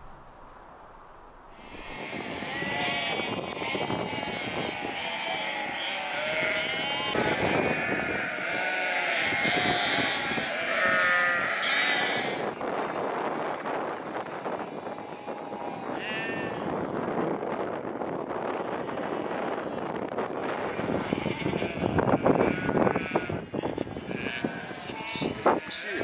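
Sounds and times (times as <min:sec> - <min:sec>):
sheep bleating: 0:01.6 - 0:12.6, 0:14.2 - 0:16.8, 0:20.6 - 0:26.0.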